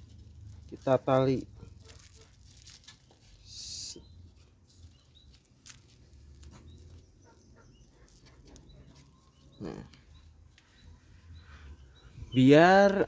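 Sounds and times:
plastic film rustling: 0.0s - 3.5s, 4.6s - 7.3s.

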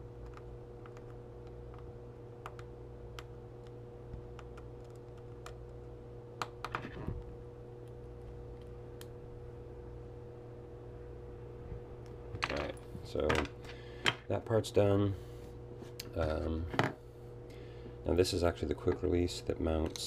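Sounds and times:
steady low hum: 0.0s - 20.0s.

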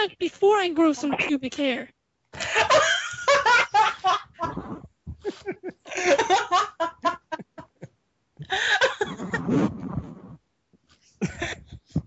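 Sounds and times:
men laughing: 2.4s - 9.4s, 11.2s - 12.0s.

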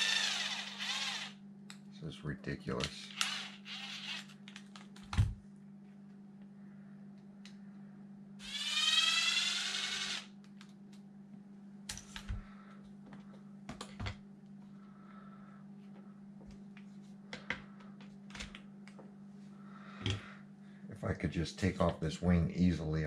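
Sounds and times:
cordless drill motor whine: 0.0s - 1.4s, 3.0s - 4.4s, 8.4s - 10.3s.

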